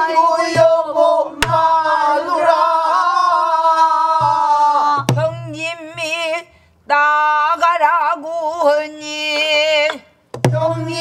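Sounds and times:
low drum thumps: 0:00.5 - 0:02.0, 0:04.1 - 0:06.1, 0:10.4 - 0:11.0
woman singing: 0:03.5 - 0:11.0.

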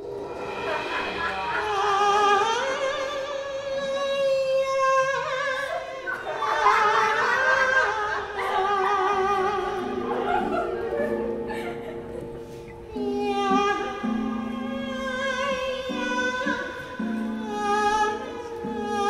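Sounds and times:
operatic singing with vibrato: 0:00.0 - 0:12.2, 0:12.8 - 0:19.0
music: 0:00.0 - 0:19.0.

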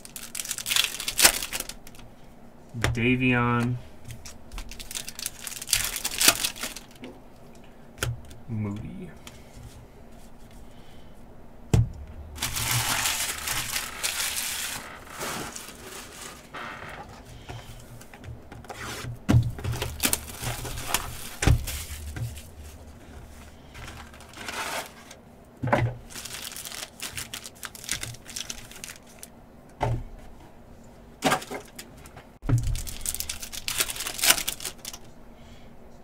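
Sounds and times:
foil wrappers crinkling and tearing: 0:00.0 - 0:02.0, 0:04.1 - 0:07.0, 0:12.4 - 0:16.9, 0:19.6 - 0:25.2, 0:26.0 - 0:29.3, 0:32.5 - 0:35.1.

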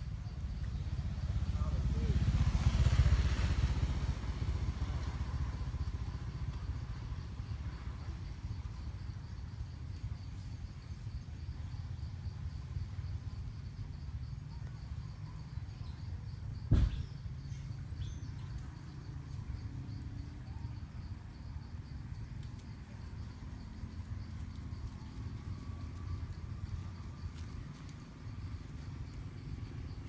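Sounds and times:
insect chirping: 0:00.0 - 0:30.0
low outdoor rumble: 0:00.0 - 0:30.0
sharp thump: 0:16.7 - 0:17.2.

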